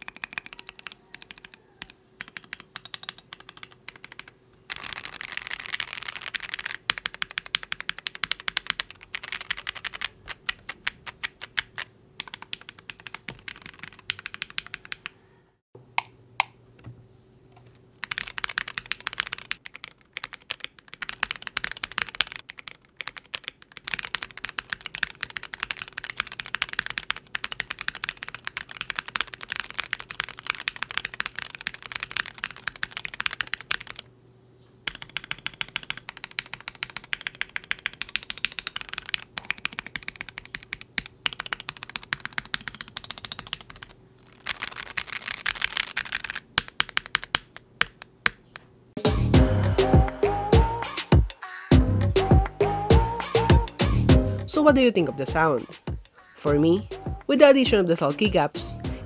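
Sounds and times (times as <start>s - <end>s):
mechanical keyboard typing: 0.0s - 15.3s, 18.0s - 34.1s, 34.8s - 48.6s.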